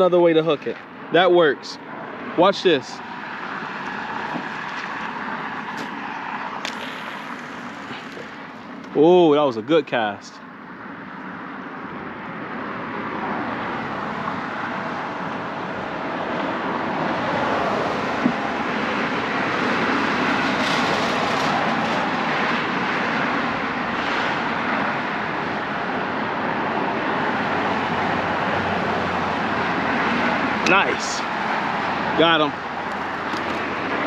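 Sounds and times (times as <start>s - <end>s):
road traffic rushing: 0.0s - 34.0s.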